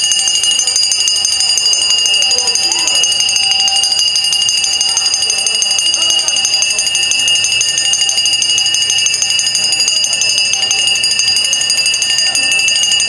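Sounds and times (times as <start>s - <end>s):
high-pitched pulsing alarm tone: 0.0s - 13.0s.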